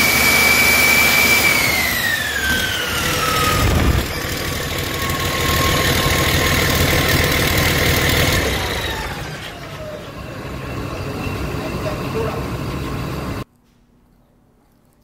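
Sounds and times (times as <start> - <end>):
diesel engine whine: 0.0 - 13.4
low engine rumble: 2.9 - 13.4.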